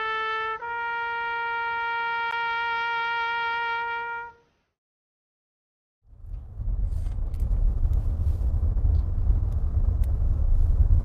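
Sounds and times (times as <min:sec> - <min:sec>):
solo horn holding a note: 0:00.0 - 0:04.5.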